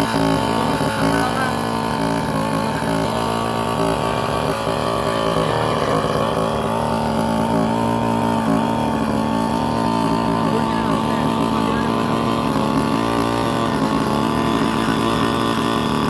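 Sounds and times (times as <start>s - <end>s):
drone engine and propellers: 0.0s - 16.0s.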